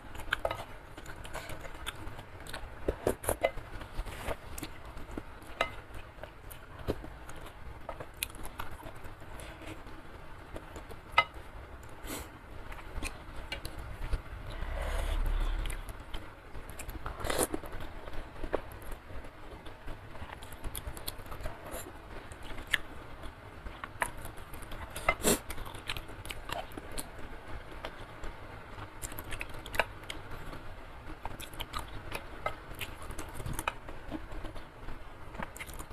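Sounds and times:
chewing and mouth clicks: 0:35.4 - 0:35.9.

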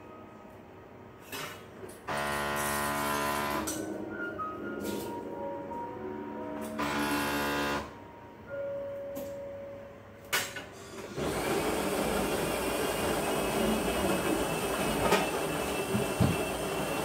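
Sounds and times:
espresso machine humming: 0:11.2 - 0:17.0.

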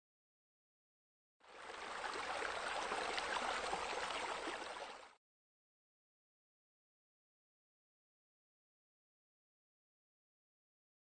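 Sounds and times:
water splashing into pool: 0:01.5 - 0:05.2.

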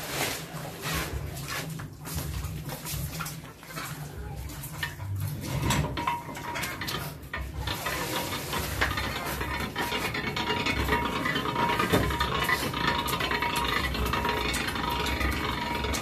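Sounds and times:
metal clinks and knocks: 0:04.7 - 0:16.0.

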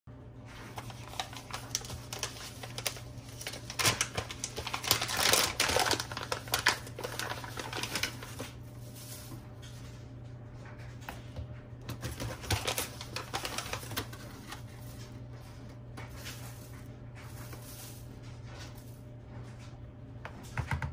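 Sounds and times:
low steady hum: 0:00.1 - 0:20.9
foil bag crinkling: 0:00.5 - 0:09.5, 0:11.9 - 0:19.1.

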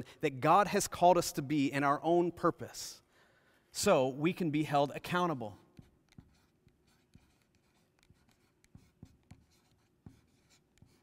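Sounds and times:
marker writing on board: 0:05.5 - 0:11.0.

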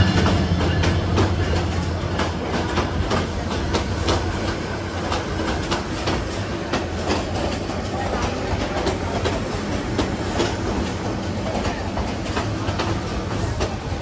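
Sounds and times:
low train rumble: 0:00.0 - 0:14.0
train wheels clickety-clack: 0:00.0 - 0:14.0.

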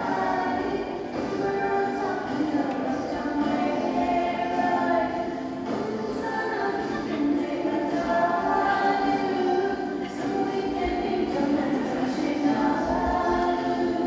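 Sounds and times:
choir singing long notes: 0:00.0 - 0:14.0.

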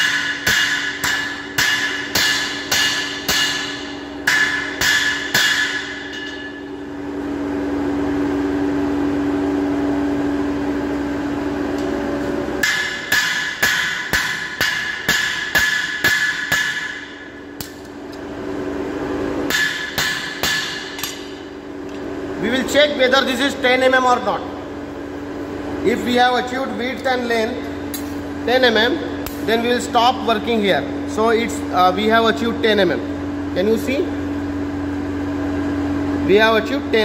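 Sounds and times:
hammer striking metal on anvil: 0:00.0 - 0:06.8, 0:12.6 - 0:17.9, 0:19.5 - 0:21.5, 0:29.1 - 0:29.6
machine hum: 0:00.0 - 0:37.0.

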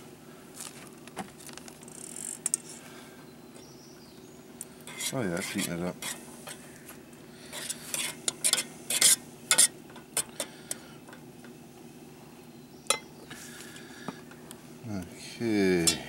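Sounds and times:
fork scraping and clinking pot: 0:04.9 - 0:06.6, 0:07.5 - 0:10.5.

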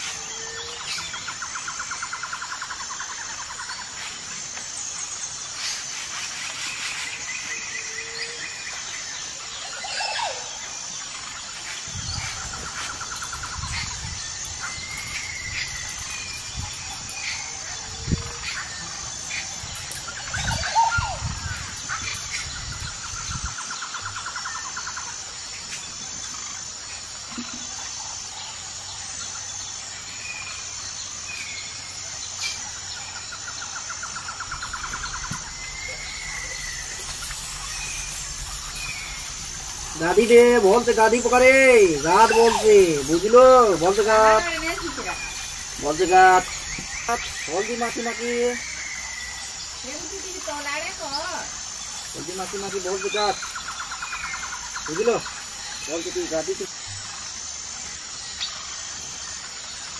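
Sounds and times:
birds chirping and trilling: 0:00.0 - 0:59.9
high insect buzz: 0:00.0 - 0:59.9
low rumbling: 0:34.2 - 0:45.9.

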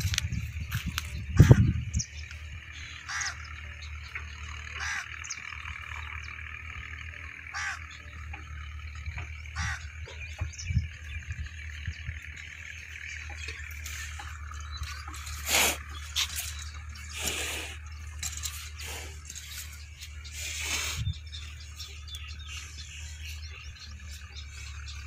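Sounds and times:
low rumble: 0:00.0 - 0:04.6.

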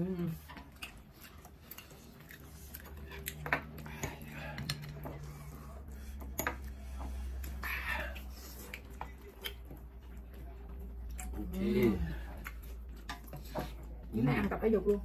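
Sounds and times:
metal chopsticks clicking and scraping: 0:00.6 - 0:09.8.

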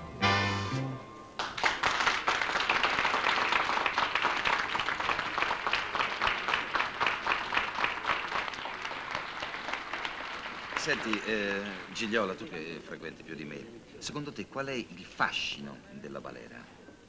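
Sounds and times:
audience applauding: 0:01.4 - 0:12.6.

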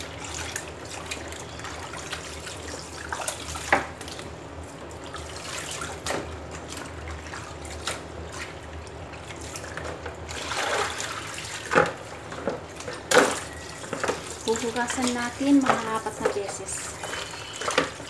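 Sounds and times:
water sloshing and dripping: 0:00.0 - 0:18.0
splashes into plastic colander: 0:12.8 - 0:15.2.

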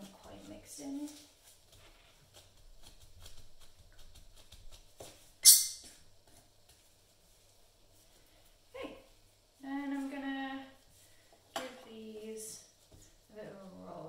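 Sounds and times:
palette knife scraping on glass: 0:05.4 - 0:05.9.

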